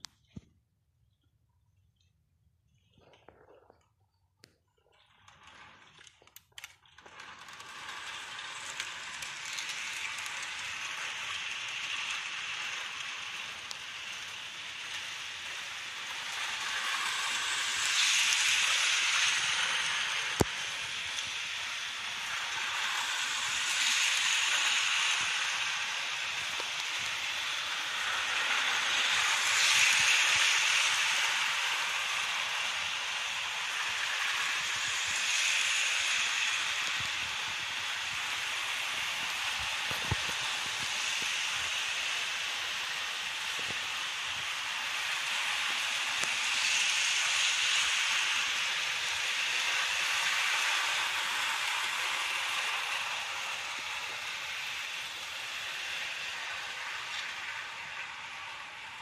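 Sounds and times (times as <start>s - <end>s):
model train motor whirring: 4.9s - 59.0s.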